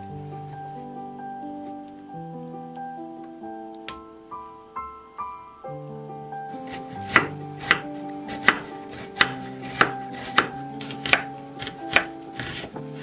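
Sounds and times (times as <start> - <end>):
knife slicing onion on board: 6.7 - 13.0.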